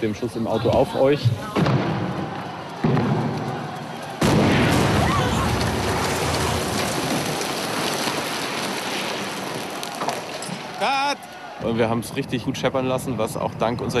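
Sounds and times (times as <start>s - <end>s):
big explosion blast: 4.2s - 7.3s.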